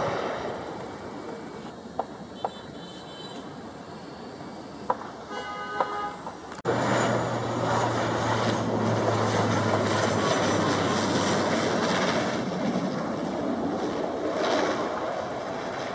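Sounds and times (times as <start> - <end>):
turboprop engines droning: 0.0 - 5.3, 6.1 - 15.9
low hum: 6.5 - 15.9.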